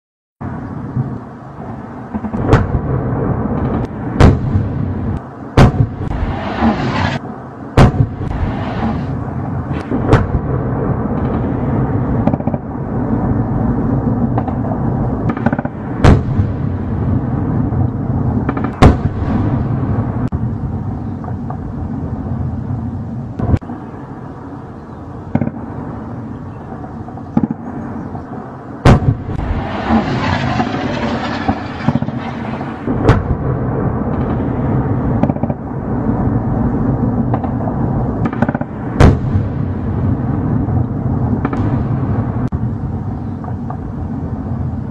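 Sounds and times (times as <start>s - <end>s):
continuous low rumble: 0.4s - 44.9s
heavy weapons fire: 2.1s - 7.2s, 7.8s - 20.4s, 28.8s - 42.7s.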